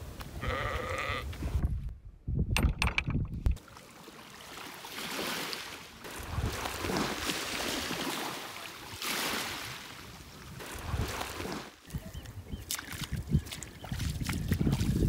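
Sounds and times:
wind gusting across microphone: 0.0s - 3.6s, 10.4s - 15.0s
shallow water washing: 3.6s - 15.0s.

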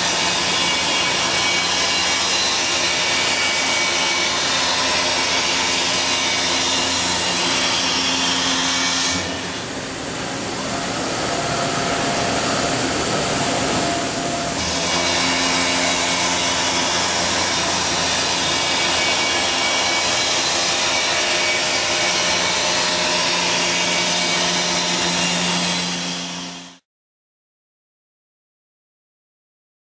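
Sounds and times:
mill cutting metal: 0.0s - 26.8s.

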